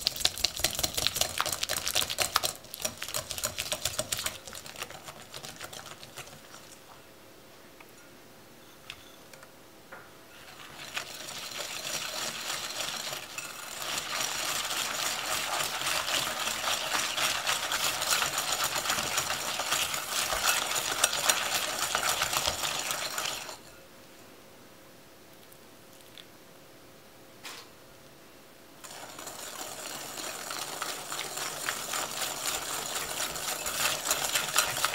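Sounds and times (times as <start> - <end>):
whisk scraping a glass bowl: 0.0 - 6.8, 10.4 - 23.7, 28.8 - 34.9.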